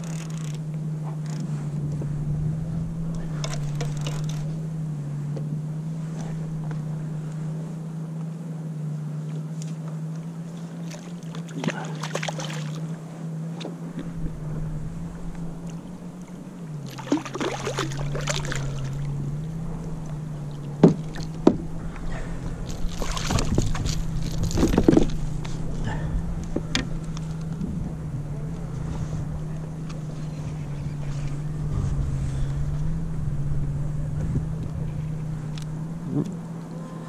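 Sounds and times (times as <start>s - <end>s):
steady low hum: 0.0s - 37.0s
fish splashing at surface: 10.9s - 12.8s, 16.8s - 19.1s, 22.7s - 25.1s
sharp knocks: 20.8s - 21.7s.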